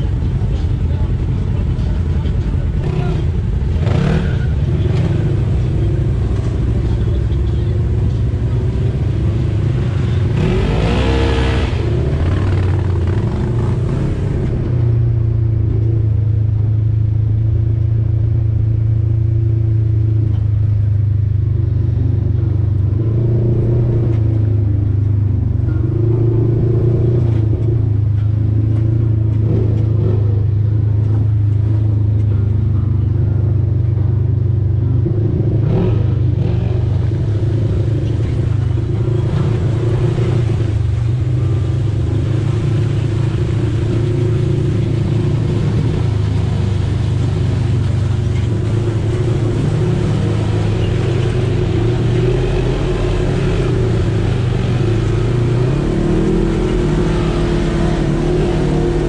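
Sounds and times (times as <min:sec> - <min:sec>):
off-road vehicle engine running: 0:00.0 - 0:59.0.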